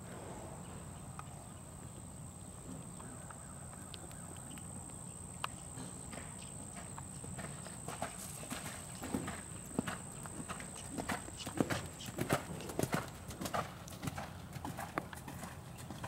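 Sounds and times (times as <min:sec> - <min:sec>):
horse hooves on sand: 0:01.2 - 0:16.0.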